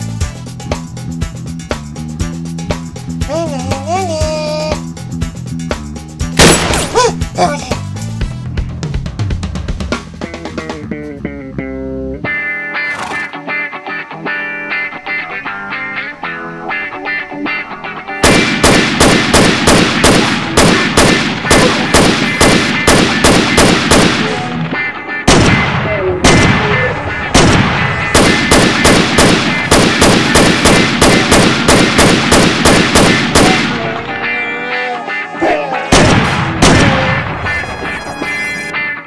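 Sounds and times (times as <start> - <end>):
background music: 0.0 - 39.0
rapid automatic rifle fire: 18.2 - 24.4, 27.4 - 33.8.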